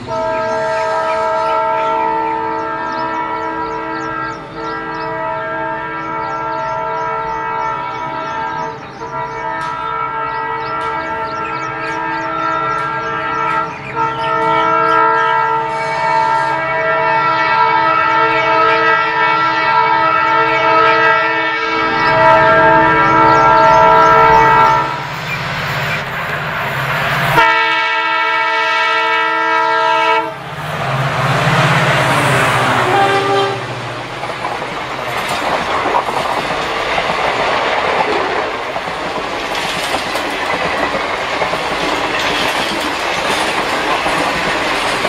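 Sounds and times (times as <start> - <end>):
locomotive air horn blast: 0.0 - 25.1, 27.4 - 30.5, 31.6 - 34.0
train engine and wheel noise: 0.0 - 45.0.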